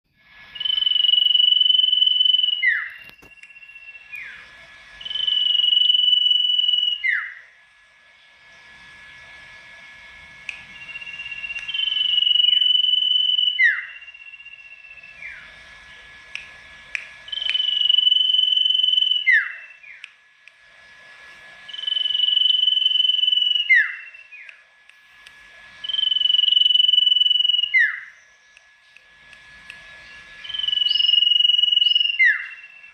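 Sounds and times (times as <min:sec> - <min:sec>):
bird singing whistled phrase: 0:00.6 - 0:04.4, 0:05.0 - 0:07.4, 0:10.7 - 0:15.5, 0:17.3 - 0:20.1, 0:21.7 - 0:24.6, 0:25.8 - 0:28.5, 0:30.4 - 0:32.9.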